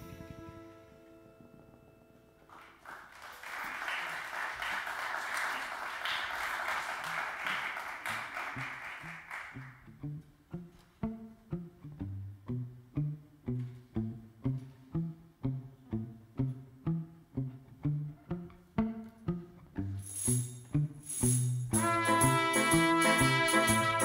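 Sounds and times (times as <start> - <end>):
audience applauding: 2.5 - 9.8
low plucked notes: 9.8 - 20.0.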